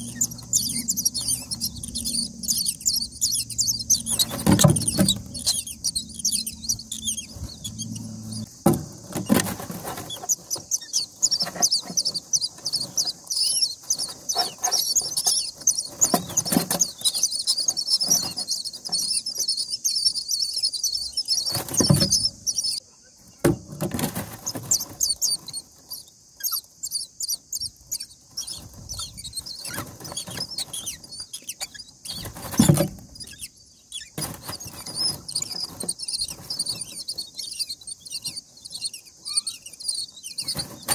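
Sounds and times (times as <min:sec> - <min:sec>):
nestlings cheeping: 0:00.0 - 0:40.9
thumps and rustles in nest: 0:03.8 - 0:05.7, 0:06.4 - 0:19.0, 0:21.4 - 0:22.7, 0:23.4 - 0:25.2, 0:32.0 - 0:33.3, 0:34.2 - 0:37.2, 0:40.4 - 0:40.9.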